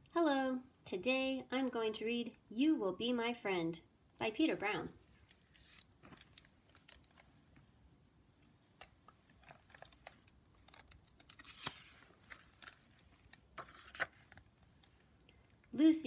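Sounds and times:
paper rustle: 0:05.2 - 0:07.5, 0:08.8 - 0:15.0.

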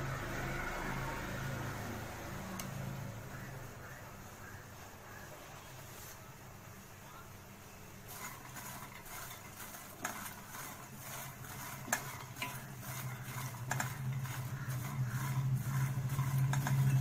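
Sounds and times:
low steady hum: 0:00.0 - 0:17.0
spatula scraping metal pot: 0:08.1 - 0:17.0.

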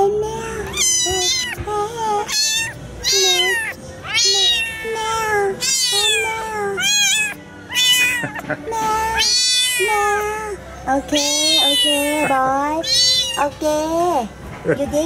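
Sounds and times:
kitten meowing: 0:00.2 - 0:13.6.

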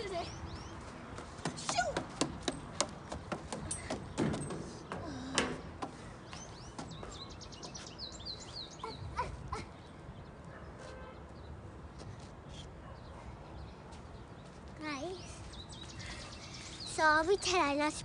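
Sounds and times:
footsteps on metal stairs: 0:01.3 - 0:07.9.

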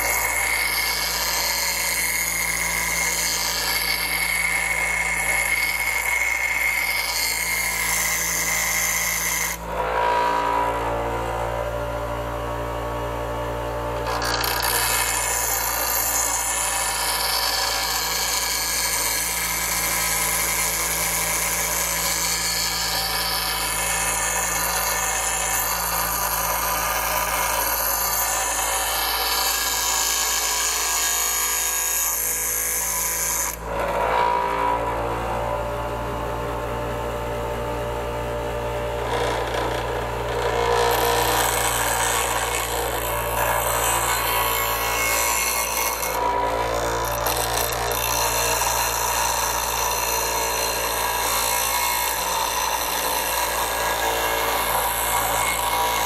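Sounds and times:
bench grinder motor hum: 0:00.0 - 0:56.0
metal being ground: 0:00.0 - 0:56.0.

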